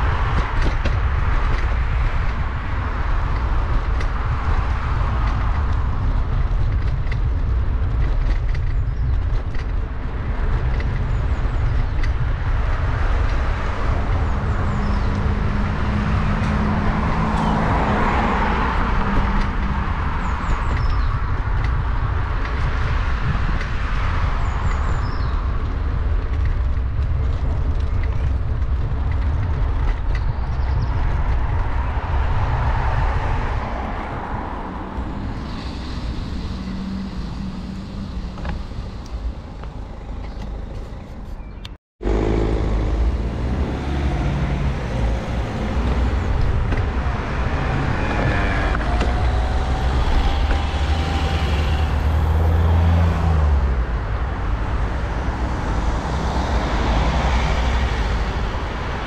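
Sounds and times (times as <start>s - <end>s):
steady low rumble: 0.0s - 59.0s
cars driving past: 10.1s - 25.9s, 30.8s - 41.4s, 42.0s - 59.0s.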